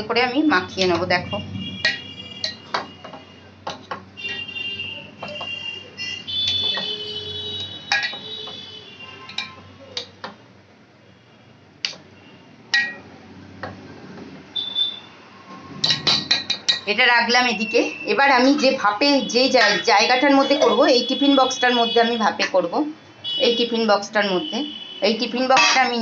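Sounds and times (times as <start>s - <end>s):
spoon scraping steel bowl: 1.8s - 3.2s, 7.8s - 8.6s, 19.5s - 19.9s, 25.6s - 26.0s.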